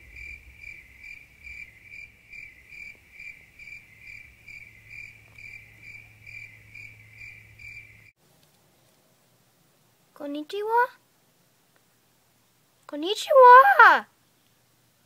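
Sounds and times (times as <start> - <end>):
low hum: 0.0 - 8.1
cricket chirping: 0.0 - 8.2.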